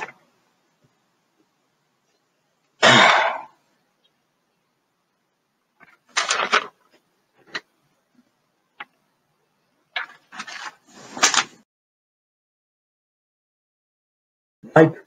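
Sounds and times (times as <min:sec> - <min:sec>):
handling noise rustling: 0:09.9 - 0:11.6.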